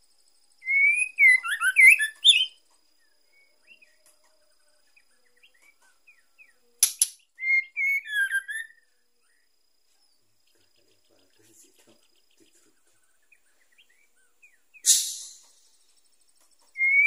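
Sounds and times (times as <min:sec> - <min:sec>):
bird whistled calls: 0:00.6 - 0:02.6, 0:07.4 - 0:08.8, 0:14.5 - 0:15.8, 0:16.7 - 0:17.0
sharp click: 0:06.8 - 0:07.2, 0:14.9 - 0:15.6.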